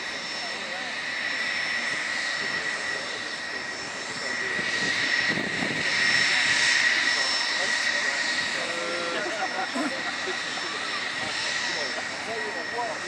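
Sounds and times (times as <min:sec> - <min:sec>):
jet airliner turbine whine: 0:00.0 - 0:13.0.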